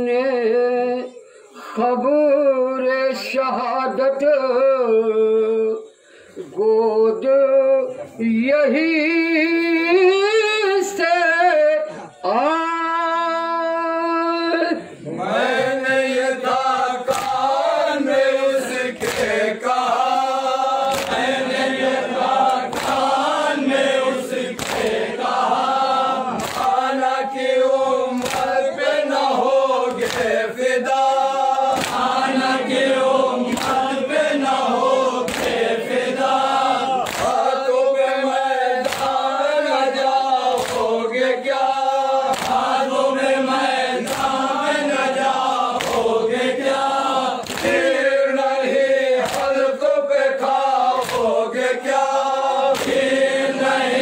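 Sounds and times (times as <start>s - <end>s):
men chanting in unison: 14.6s - 54.0s.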